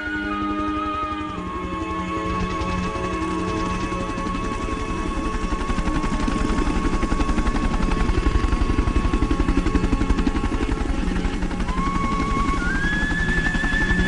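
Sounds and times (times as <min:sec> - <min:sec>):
helicopter rotor chopping: 0:00.0 - 0:14.0
steady high tone: 0:00.0 - 0:14.0.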